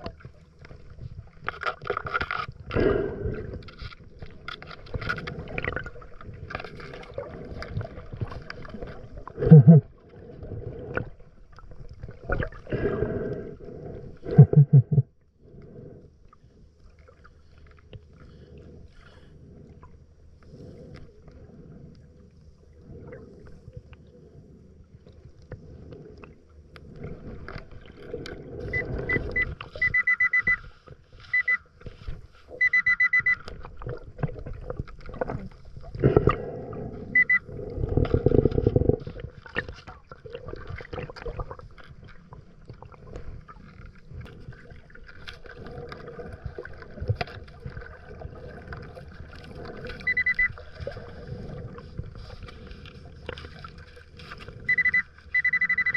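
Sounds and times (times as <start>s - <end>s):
diver breathing underwater: 2.6s - 11.4s, 12.3s - 16.8s, 18.1s - 32.7s, 35.3s - 39.5s, 43.0s - 55.9s
bubbling gurgles: 4.8s - 15.1s, 33.5s - 52.4s
metal detector high beeps: 28.7s - 30.7s, 31.3s - 31.7s, 32.5s - 33.4s, 37.1s - 37.4s, 50.0s - 50.6s, 54.7s - 55.9s.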